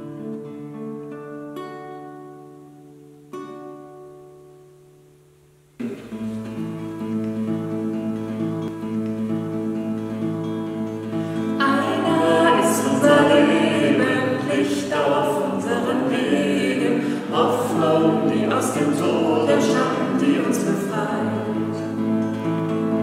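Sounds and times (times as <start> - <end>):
acoustic guitar: 0.0 - 23.0
group singing a hymn: 11.4 - 23.0.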